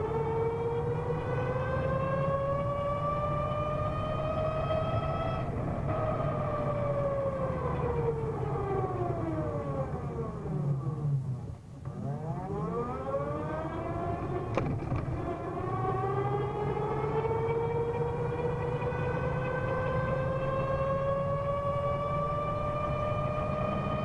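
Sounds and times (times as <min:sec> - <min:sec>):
low hum and road noise: 0:00.0 - 0:24.0
scooter gear whining: 0:13.3 - 0:24.0.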